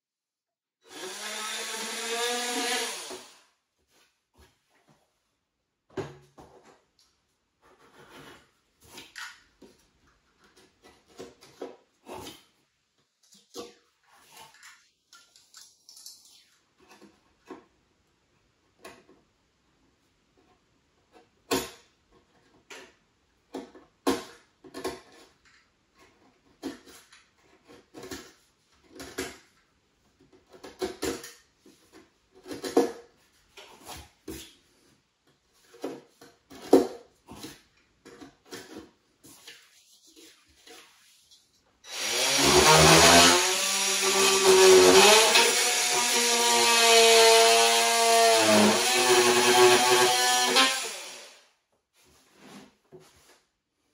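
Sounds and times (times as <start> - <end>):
knocks and scrapes on wood: 7.6 - 9.8.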